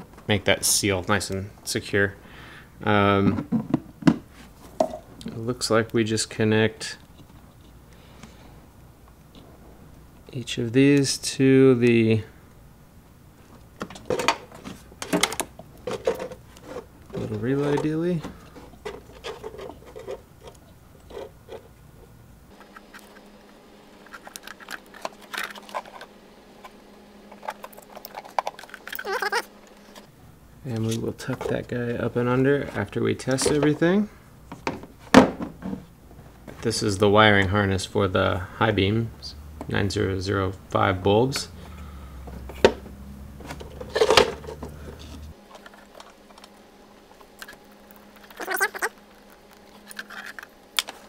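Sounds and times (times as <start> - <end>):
low steady hum: 0.0 - 51.0
wires rustling and rattling: 13.4 - 36.8, 43.4 - 51.0.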